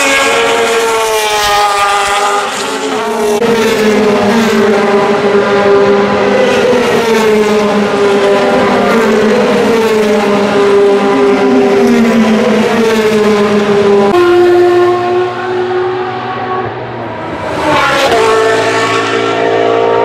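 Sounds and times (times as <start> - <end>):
race car engines passing: 0.0 - 20.0
steady car engine note: 13.4 - 20.0.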